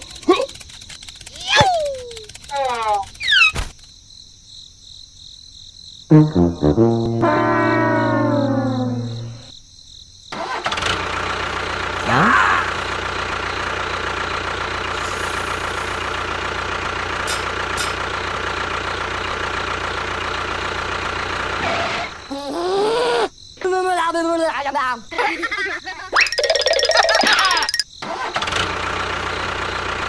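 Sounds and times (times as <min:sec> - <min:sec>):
rising whistle: 0:06.1 - 0:09.5.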